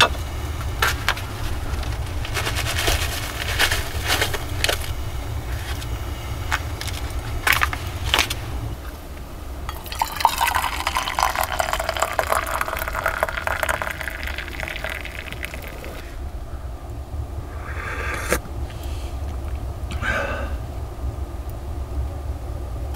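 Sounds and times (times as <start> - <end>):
tea pouring into a metal mug: 9.7 - 16.2.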